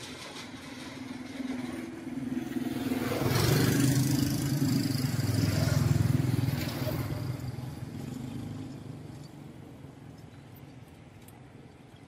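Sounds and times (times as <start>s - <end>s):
motor engine approaching: 0.1s - 9.8s.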